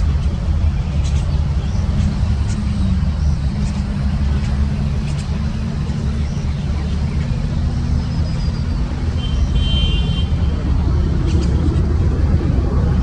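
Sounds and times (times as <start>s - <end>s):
large engine rumbling: 0.0s - 13.0s.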